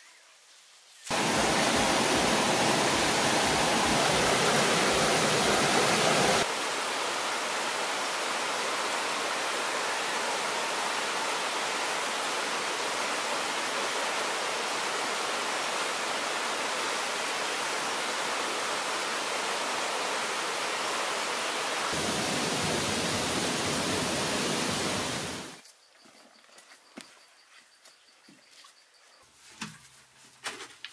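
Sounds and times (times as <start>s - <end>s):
stream rushing over stones: 1.1s - 25.6s.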